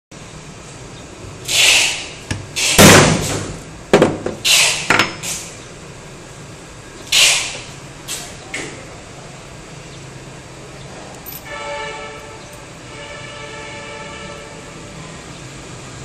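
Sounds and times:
tools knocking on wood: 0:03.9 - 0:05.2.

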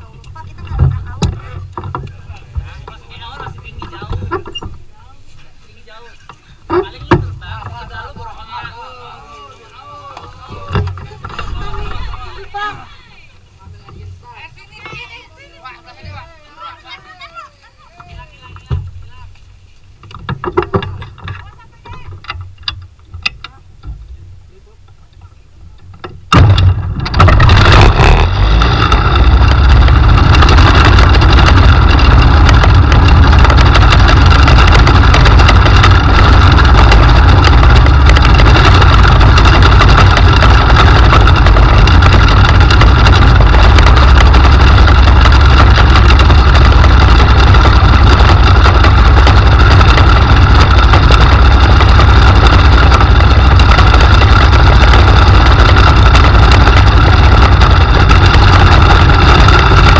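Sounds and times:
aircraft engine starting and running: 0:26.4 - 0:59.9.

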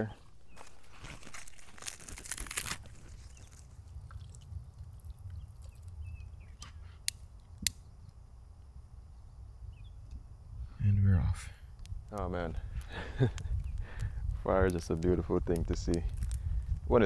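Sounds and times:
twigs rustling: 0:00.0 - 0:07.6, 0:12.0 - 0:17.0
dry twigs crunching: 0:00.1 - 0:06.4, 0:12.8 - 0:17.0
twigs snapping: 0:00.5 - 0:06.0, 0:11.8 - 0:16.9.

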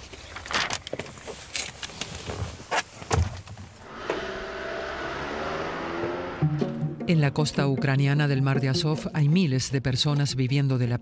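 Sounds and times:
car door shutting: 0:03.1 - 0:04.6
soft background music: 0:05.2 - 0:10.6.

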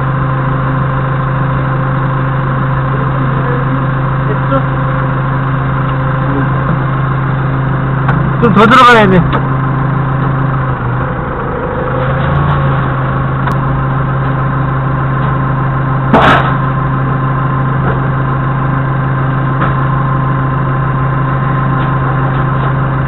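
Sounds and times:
forklift engine running: 0:00.0 - 0:23.0.

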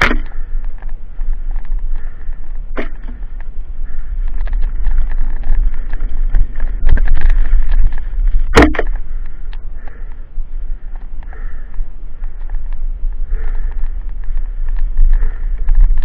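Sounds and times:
bike clicks and rattles: 0:00.0 - 0:16.0
wind rumble on microphone: 0:00.0 - 0:16.0
sharp knock: 0:08.5 - 0:08.9.

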